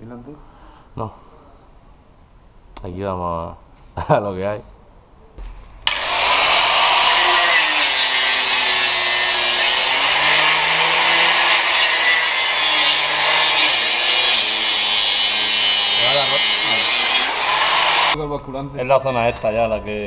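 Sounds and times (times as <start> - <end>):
angle grinder cutting metal pipe: 5.8 - 18.2.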